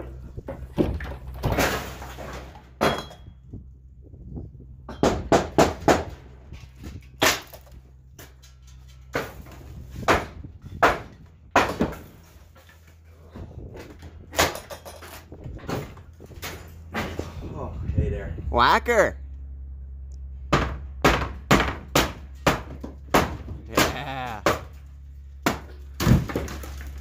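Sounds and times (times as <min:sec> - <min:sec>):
wooden boards knocking and cracking: 0:00.0 - 0:03.3, 0:04.9 - 0:06.2, 0:06.9 - 0:08.4, 0:09.1 - 0:17.3, 0:20.5 - 0:27.0.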